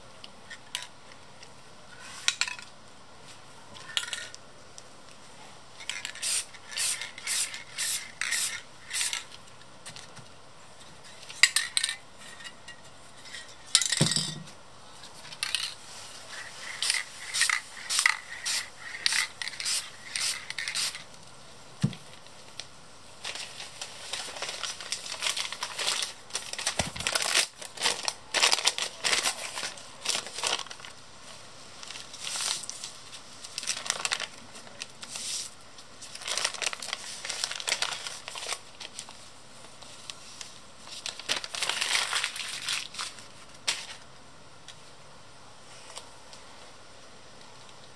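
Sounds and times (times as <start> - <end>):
spray can hissing: 6.1 - 9.2, 16.3 - 21.0
newspaper crinkling: 22.1 - 31.0, 31.7 - 44.0.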